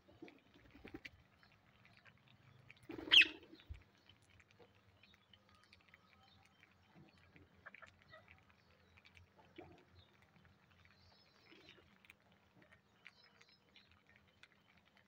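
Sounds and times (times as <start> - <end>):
beaks pecking seed off concrete: 0.1 - 15.0
soft bird chirps: 0.1 - 15.0
parakeet squawk: 3.1 - 3.4.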